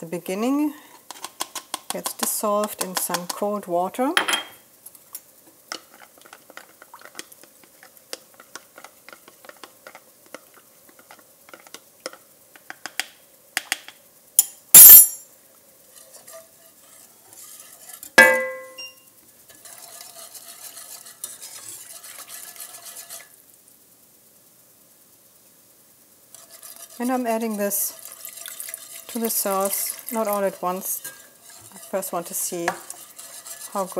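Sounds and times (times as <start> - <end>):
wire whisk stirring in pot: 1.0 - 4.0, 5.1 - 12.8, 15.8 - 23.4, 26.3 - 33.9
spoon clinking in glass cup: 14.8 - 15.2, 18.2 - 19.0
ringing metal strike: 18.2 - 19.0.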